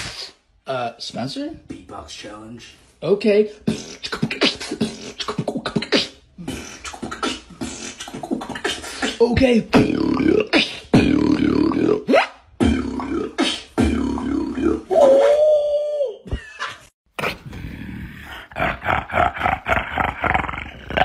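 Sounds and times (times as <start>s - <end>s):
person beatboxing: 3.6s - 15.5s.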